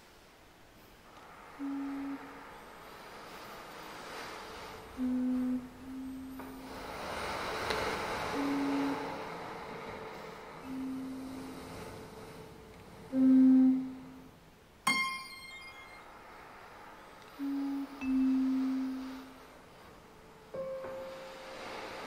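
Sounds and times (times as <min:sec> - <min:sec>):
bright metallic struck note: 0:14.9 - 0:16.1
held higher tone: 0:14.9 - 0:16.2, 0:17.4 - 0:19.3.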